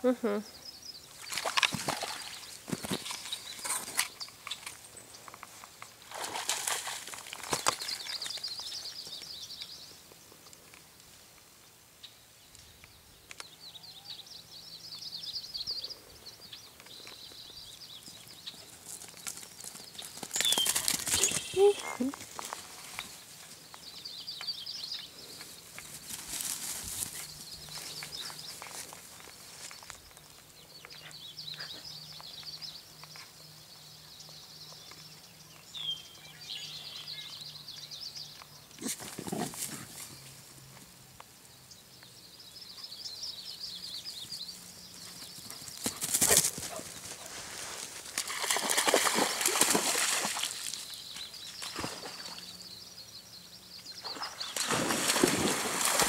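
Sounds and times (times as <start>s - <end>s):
birds chirping: 12.0s - 56.0s
rustling through grass and brush: 18.4s - 23.9s, 25.3s - 30.4s, 44.1s - 52.2s.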